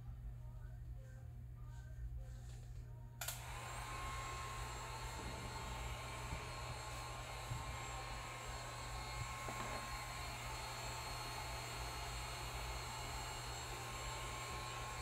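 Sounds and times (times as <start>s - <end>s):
heat gun blowing hiss: 3.4s - 15.0s.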